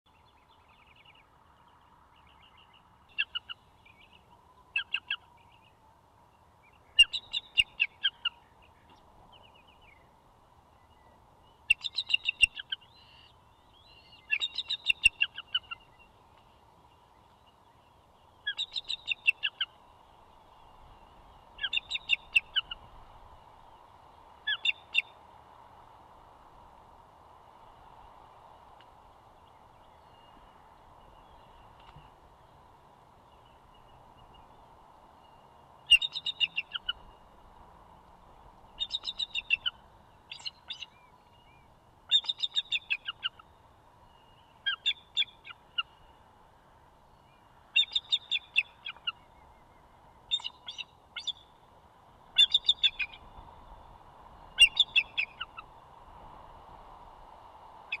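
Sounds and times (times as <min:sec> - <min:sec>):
eagle chittering calls: 0:03.1 - 0:05.3, 0:06.9 - 0:08.4, 0:11.6 - 0:16.0, 0:18.4 - 0:19.8, 0:21.6 - 0:22.9, 0:24.5 - 0:25.1, 0:35.8 - 0:37.2, 0:38.8 - 0:41.0, 0:42.1 - 0:43.5, 0:44.6 - 0:46.1, 0:47.7 - 0:49.3, 0:50.3 - 0:51.5, 0:52.4 - 0:53.3, 0:54.5 - 0:55.7.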